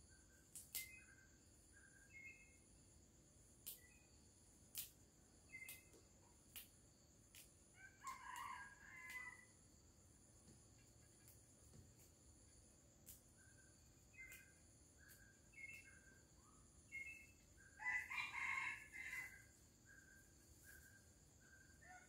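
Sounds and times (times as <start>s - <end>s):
herb stems snapping by hand: 0.5s - 1.0s, 3.6s - 3.9s, 4.7s - 7.6s, 13.0s - 13.3s.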